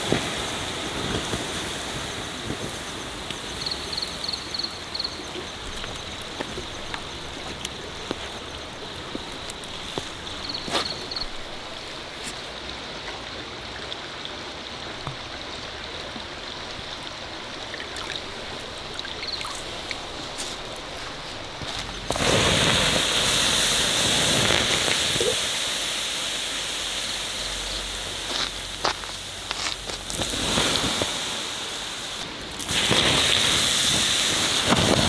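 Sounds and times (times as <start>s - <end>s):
forest stream rushing: 0.0s - 35.0s.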